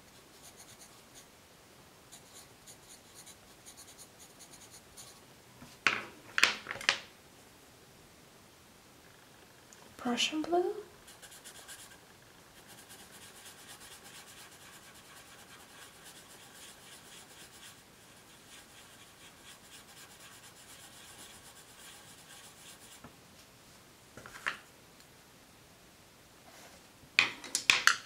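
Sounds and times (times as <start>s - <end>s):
pencil scratching on paper: 0.3s - 1.3s, 2.1s - 5.2s, 11.0s - 12.0s, 12.6s - 23.0s
pencils clicking on a table: 27.2s - 28.0s.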